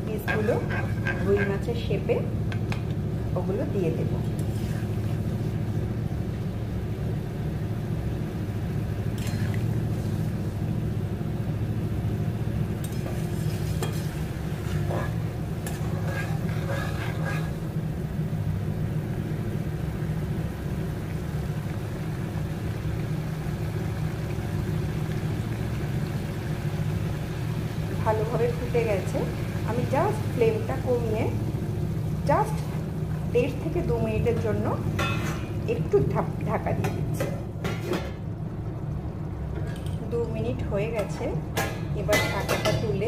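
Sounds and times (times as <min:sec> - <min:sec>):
steady low hum: 0:00.0 - 0:43.0
curry gravy bubbling: 0:08.2 - 0:18.4, 0:19.2 - 0:36.4.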